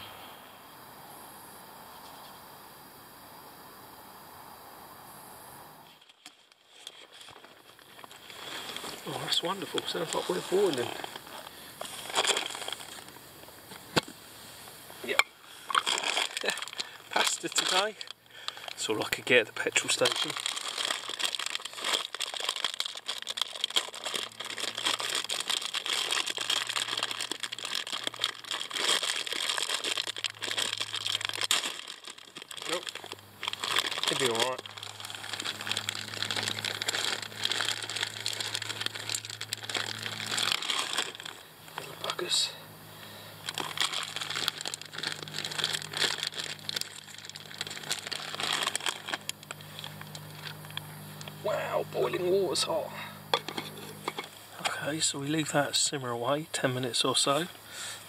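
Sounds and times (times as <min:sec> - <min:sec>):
plastic bag crinkling: 0:05.9 - 0:14.0, 0:15.0 - 0:42.6, 0:43.4 - 0:52.6.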